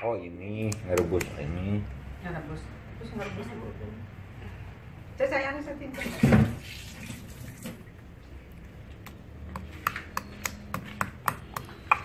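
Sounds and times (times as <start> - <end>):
stone pestle pounding in mortar: 9.5 - 12.0.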